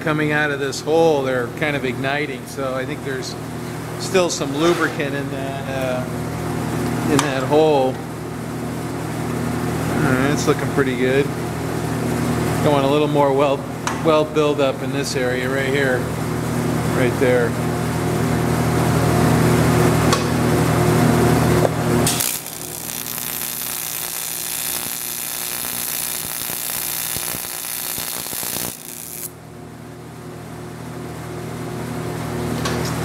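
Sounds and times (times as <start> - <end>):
electrical hum of welder: 1.1 - 29.6
welding arc hissing: 22.1 - 29.3.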